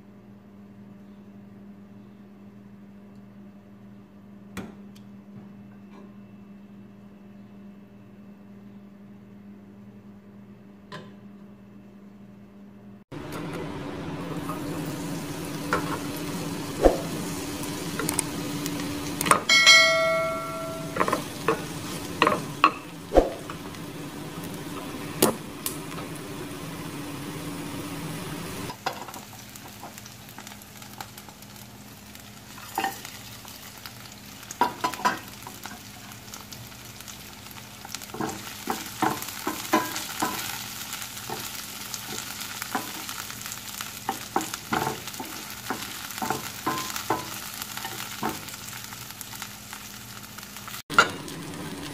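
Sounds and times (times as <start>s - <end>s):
low steady hum: 2.0s - 28.7s
vegetables sizzling in hot oil: 13.6s - 51.9s
loud ringing clink: 19.5s - 21.2s.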